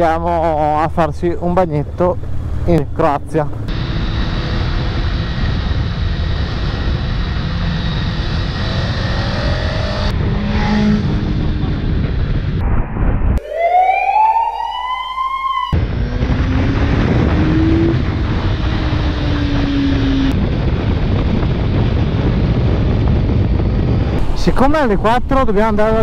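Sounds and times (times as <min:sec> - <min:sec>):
motorcycle riding wind and engine: 0:00.0 - 0:13.4, 0:15.8 - 0:26.0
rising siren-like wail: 0:03.6 - 0:20.5.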